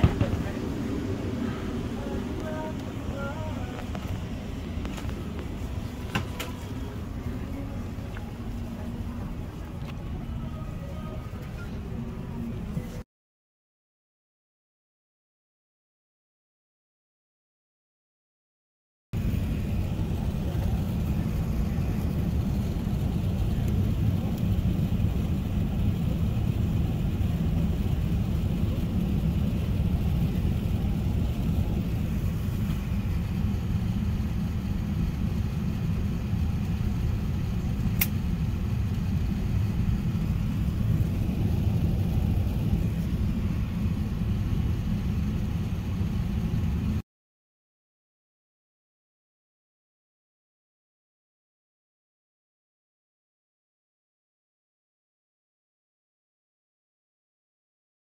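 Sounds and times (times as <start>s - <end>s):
jet airliner cabin rumble: 0.0s - 13.0s, 19.2s - 47.0s
sharp click: 38.0s - 38.2s.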